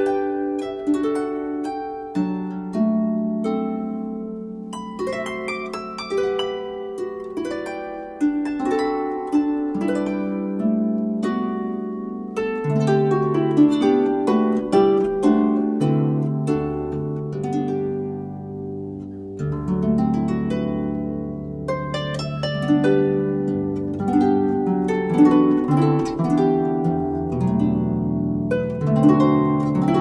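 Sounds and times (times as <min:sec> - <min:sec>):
solo harp music: 0:00.0 - 0:30.0.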